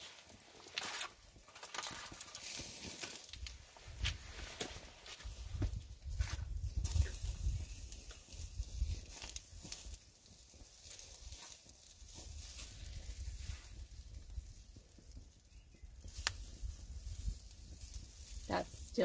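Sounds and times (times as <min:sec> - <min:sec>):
steak sizzling on a grill: 0:00.0 - 0:03.4, 0:05.2 - 0:19.0
campfire crackles: 0:00.0 - 0:19.0.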